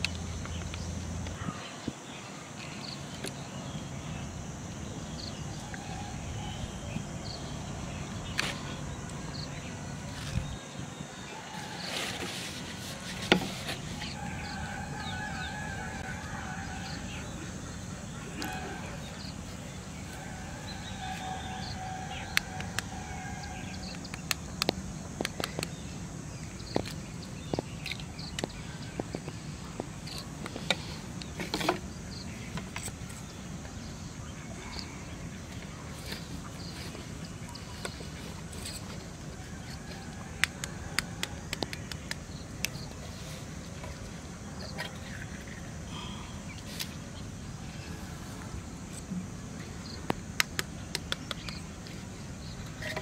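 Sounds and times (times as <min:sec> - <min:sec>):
long steady tone: 0:12.8 - 0:25.1.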